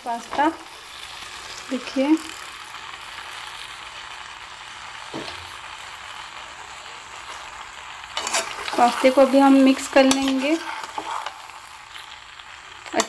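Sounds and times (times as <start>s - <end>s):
sauce sizzling in a frying pan: 0.0s - 13.0s.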